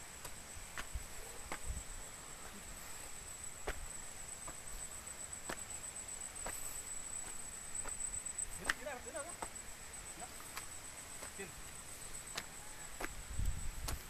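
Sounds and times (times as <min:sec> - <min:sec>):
footsteps on concrete steps: 0:00.3 - 0:01.8, 0:02.4 - 0:09.6, 0:10.2 - 0:14.0
high-pitched insect drone: 0:00.9 - 0:13.8.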